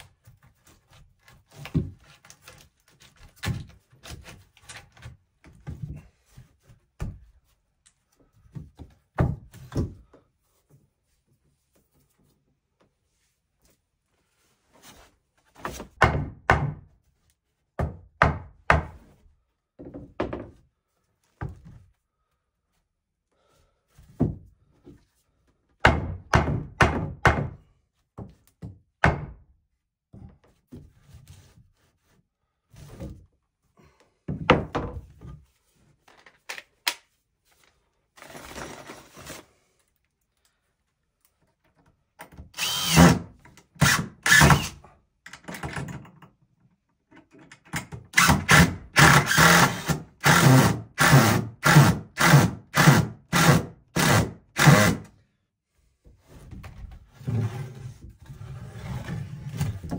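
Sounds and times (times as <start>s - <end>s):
cordless drill driving screws: 42.6s - 43.2s, 43.8s - 44.8s, 48.2s - 55.0s.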